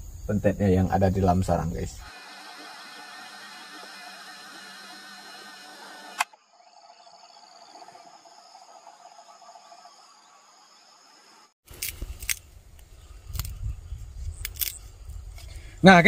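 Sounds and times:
faint insect drone: 0:00.0 - 0:16.0.

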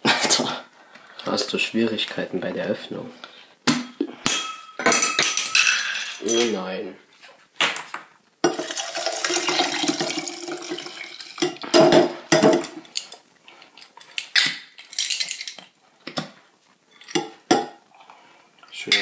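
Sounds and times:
drink pouring over ice: 0:08.5 - 0:11.5.

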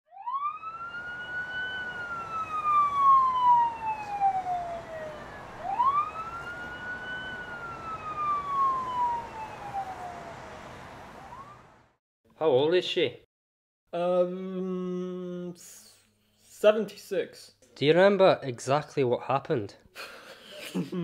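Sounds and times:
emergency vehicle siren wailing: 0:00.1 - 0:12.0.

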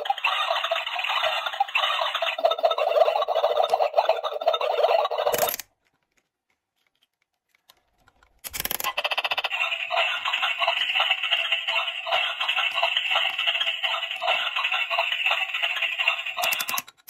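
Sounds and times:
electronic frying sound from toy: 0:00.0 - 0:05.5, 0:08.8 - 0:16.8.

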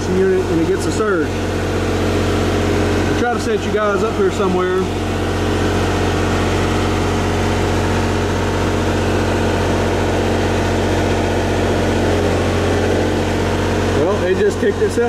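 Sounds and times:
generator engine droning: 0:00.0 - 0:15.0.

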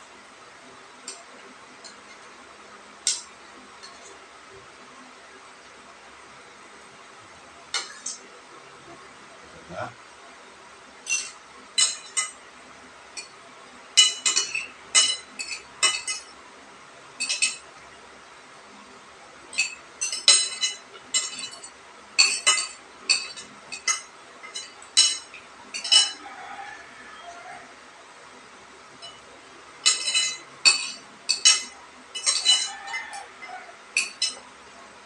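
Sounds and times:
utensils clinking against dishes: 0:07.8 - 0:08.3, 0:11.0 - 0:12.4, 0:13.2 - 0:13.4, 0:14.0 - 0:16.4, 0:17.2 - 0:17.7, 0:19.5 - 0:26.3, 0:29.0 - 0:34.5.

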